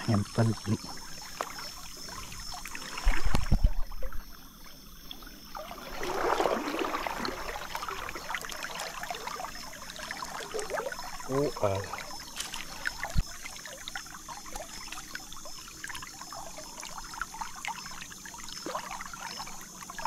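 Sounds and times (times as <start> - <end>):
river water splashing and trickling: 0.0 - 20.0
loud water splash: 5.6 - 8.5.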